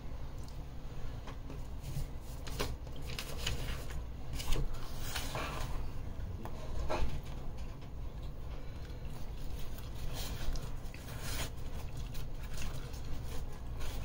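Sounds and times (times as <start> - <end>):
wet chewing: 8.1 - 14.0.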